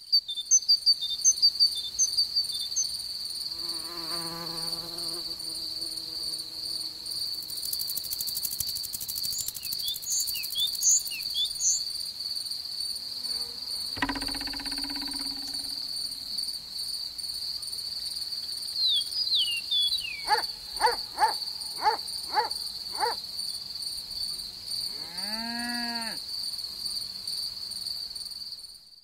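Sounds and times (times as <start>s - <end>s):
insects trilling and chirping: 0.0s - 29.0s
flying insect buzzing past: 3.4s - 9.2s, 12.8s - 16.5s.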